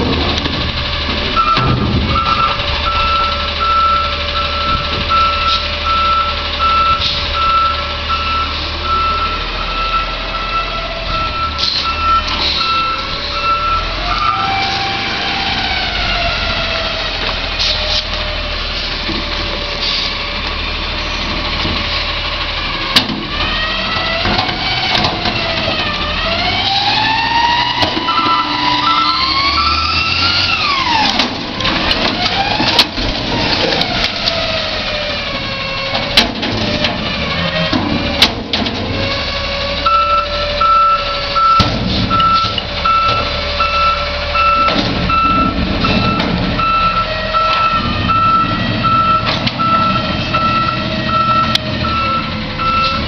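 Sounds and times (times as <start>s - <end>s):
truck engine revving: 0.0s - 53.0s
reversing alarm beeping: 1.3s - 16.9s, 26.7s - 31.1s, 39.8s - 53.0s.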